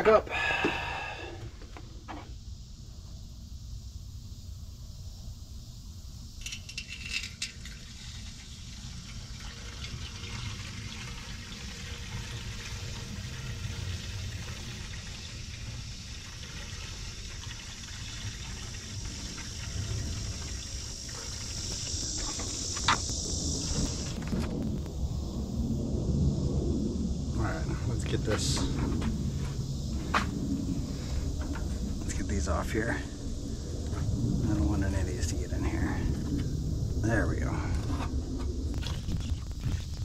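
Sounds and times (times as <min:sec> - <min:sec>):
liquid pouring into radiator: 0:06.6 - 0:24.4, 0:38.7 - 0:40.0.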